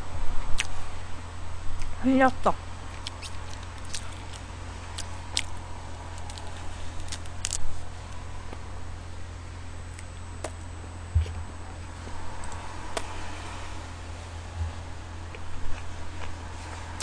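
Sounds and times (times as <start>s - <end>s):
steady low hum: 0.0s - 17.0s
close-miked chewing: 0.6s - 0.8s, 2.9s - 8.7s
mouth clicks and smacks: 3.0s - 4.4s.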